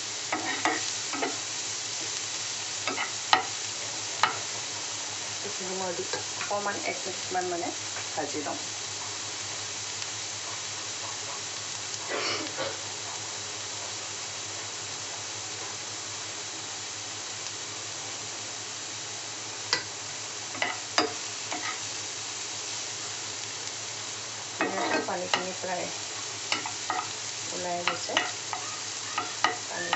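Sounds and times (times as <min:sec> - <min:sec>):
vegetables sizzling in butter: 0:00.0 - 0:29.9
spatula scraping pan: 0:00.3 - 0:01.4, 0:20.6 - 0:21.8, 0:24.6 - 0:25.6, 0:26.5 - 0:27.2, 0:27.8 - 0:29.9.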